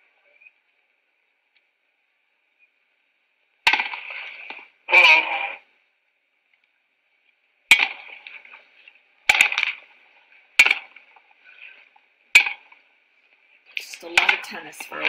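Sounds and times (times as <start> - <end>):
tennis ball struck by rackets: 7.7 - 8.2, 10.6 - 11.0.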